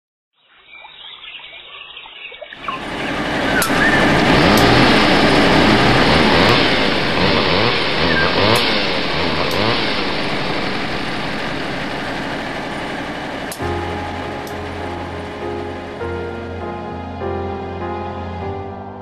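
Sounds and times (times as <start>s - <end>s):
heavy machinery engines: 2.6s - 18.6s
sharp cracks: 2.9s - 16.6s.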